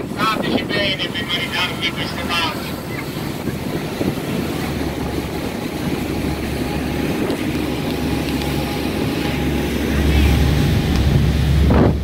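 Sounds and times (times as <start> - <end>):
boat engine running: 0.0 - 12.0
water: 0.0 - 12.0
wind: 0.0 - 12.0.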